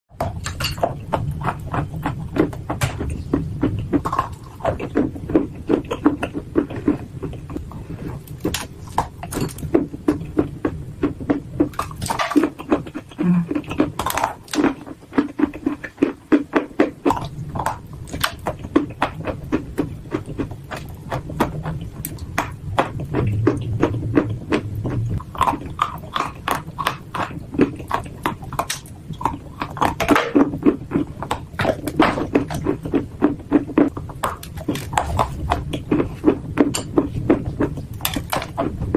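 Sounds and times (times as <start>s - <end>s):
dry clay being chewed: 0.1s - 38.9s.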